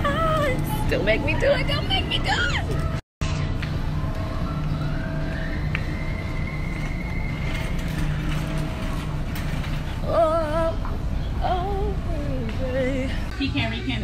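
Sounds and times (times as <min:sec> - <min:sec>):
woman singing with vibrato: 0:10.0 - 0:14.0.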